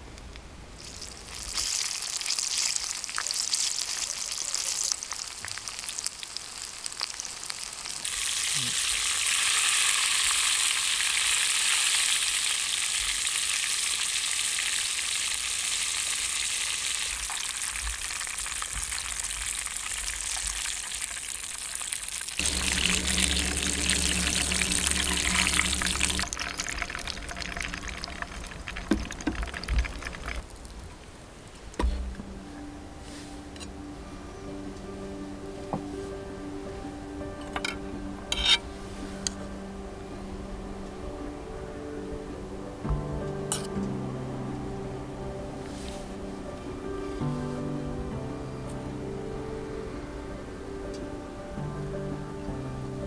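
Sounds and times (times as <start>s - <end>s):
food sizzling in hot oil: 0.8s - 30.6s
low steady hum: 22.4s - 53.0s.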